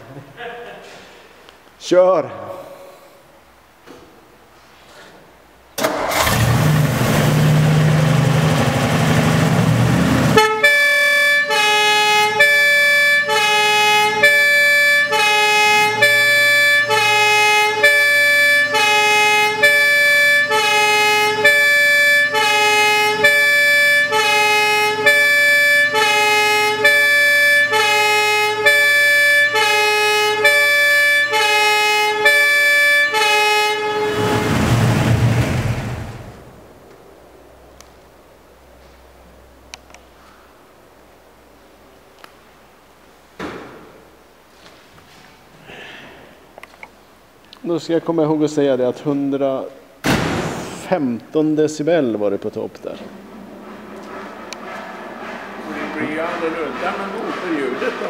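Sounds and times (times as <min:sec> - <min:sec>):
two-tone fire engine siren: 0:10.3 - 0:35.1, 0:54.0 - 0:58.0
loud rushing noise: 0:34.0 - 0:36.8, 0:52.9 - 0:58.0.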